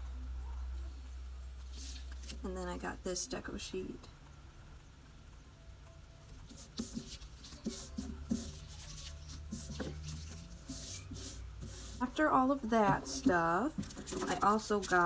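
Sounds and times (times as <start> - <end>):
paper sheets rustling: 1.7 - 2.4, 6.5 - 12.1, 12.9 - 15.0.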